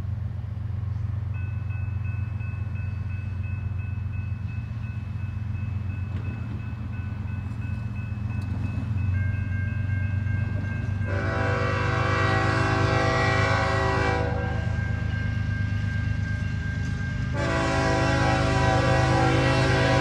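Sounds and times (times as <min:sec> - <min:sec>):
locomotive air horn blasts: 0:11.1 - 0:14.8, 0:17.3 - 0:20.0.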